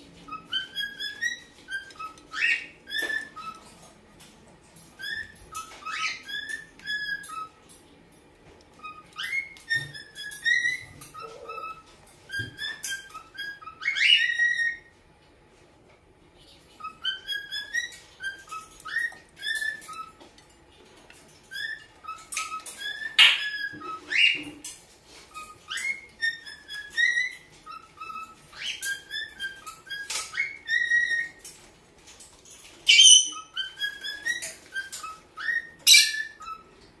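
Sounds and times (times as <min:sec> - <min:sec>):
cockatiel whistling: 0:00.2 - 0:03.8, 0:05.0 - 0:07.6, 0:08.8 - 0:14.9, 0:16.7 - 0:20.2, 0:21.5 - 0:31.5, 0:32.8 - 0:36.8
harsh bird chirps: 0:32.8 - 0:36.8.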